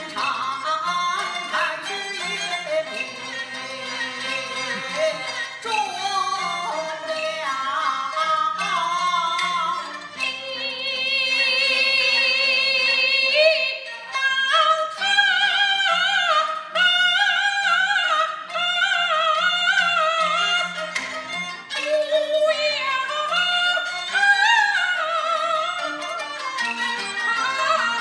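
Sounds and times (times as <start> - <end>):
opera singing: 0.0 - 20.2
instrumental accompaniment: 0.0 - 28.0.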